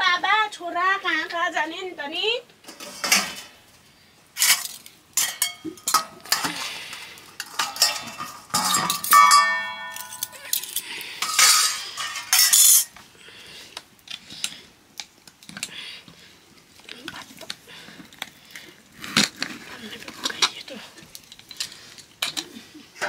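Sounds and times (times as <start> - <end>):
dishes and utensils clattering: 2.7 - 3.6, 4.4 - 13.0.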